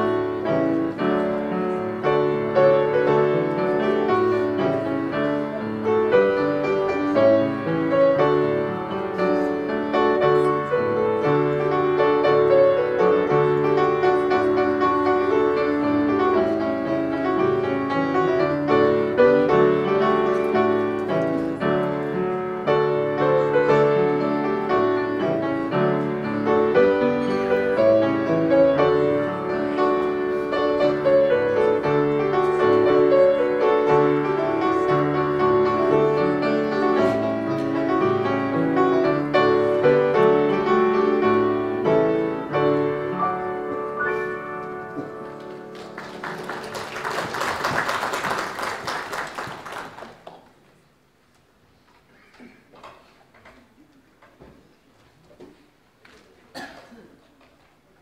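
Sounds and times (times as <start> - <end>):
solo piano piece: 0.0 - 47.8
applause: 45.4 - 50.6.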